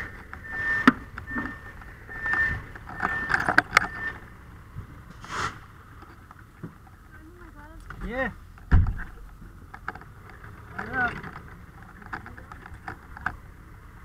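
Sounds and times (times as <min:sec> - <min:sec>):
electronic warning beeps: 0:00.0 - 0:04.4
sharp clicks and knocks: 0:00.1 - 0:04.2, 0:07.8 - 0:13.4.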